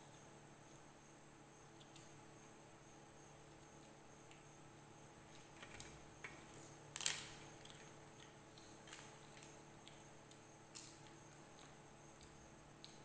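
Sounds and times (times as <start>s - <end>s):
chewing: 7.6s - 13.0s.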